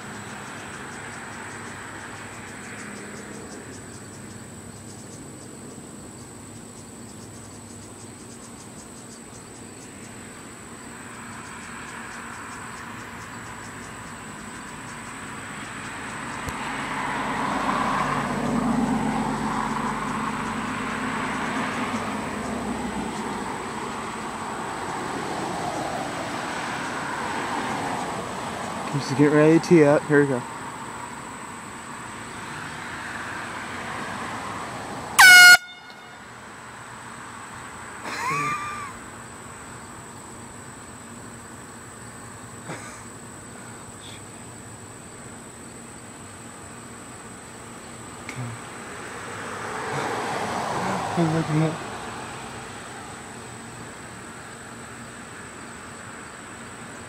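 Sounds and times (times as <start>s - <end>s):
motor vehicle passing by: 0.0s - 5.8s, 9.8s - 40.0s, 46.5s - 57.0s
high insect whine: 0.0s - 57.0s
air horn blast: 35.2s - 36.3s.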